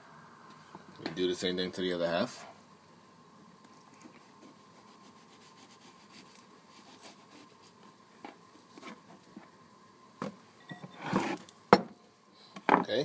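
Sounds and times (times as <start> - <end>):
knife scraping pear: 3.9 - 7.8.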